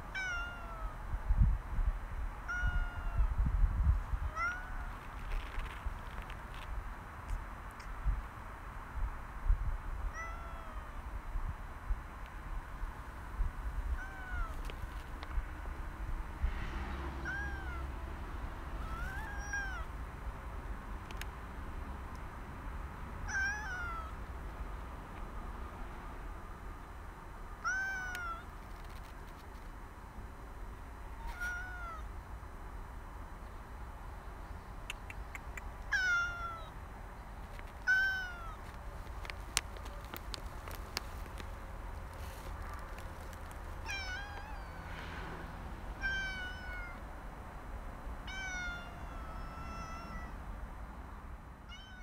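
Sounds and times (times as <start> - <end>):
cat meowing: 0.1 - 0.9, 2.5 - 3.3, 4.3 - 5.0, 10.1 - 11.0, 13.9 - 14.7, 17.2 - 17.9, 18.8 - 19.9, 23.3 - 24.2, 27.6 - 28.5, 31.2 - 32.1, 35.9 - 36.7, 37.8 - 38.6, 43.8 - 45.0, 46.0 - 47.0, 48.3 - 50.4, 51.7 - 52.0.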